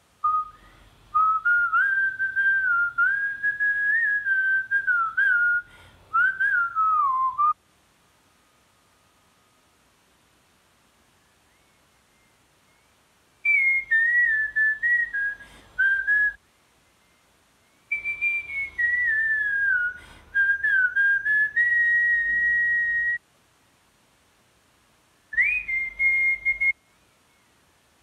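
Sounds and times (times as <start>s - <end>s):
man whistling a melody: 0.2s - 7.6s, 13.4s - 16.4s, 17.9s - 23.2s, 25.3s - 27.0s.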